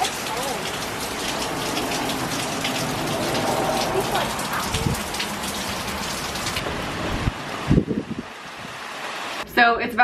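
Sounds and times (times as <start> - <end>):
heavy rain hiss: 0.0 - 9.4
gusting wind: 1.6 - 10.0
wind buffeting thumps: 2.6 - 8.9.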